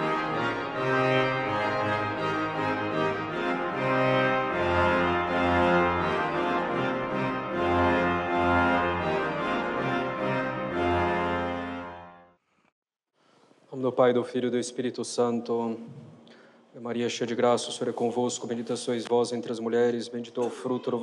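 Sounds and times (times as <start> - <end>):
organ playing held chords: 0.0 - 12.3.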